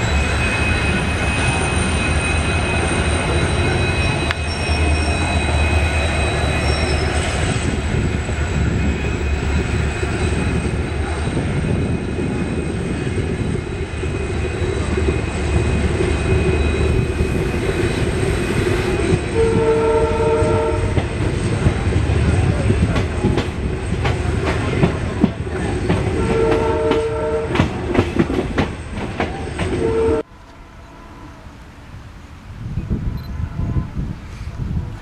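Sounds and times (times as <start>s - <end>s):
thin steady whine: 0.0s - 19.4s
train rumbling past: 0.0s - 35.0s
train horn: 18.9s - 21.1s, 26.0s - 27.8s, 29.4s - 31.8s.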